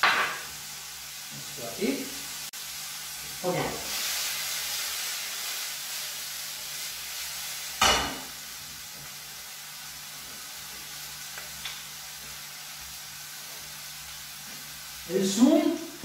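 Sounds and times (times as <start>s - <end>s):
vegetables sizzling in a frying pan: 0.0s - 16.0s
pan clanking on hob grate: 7.8s - 8.3s.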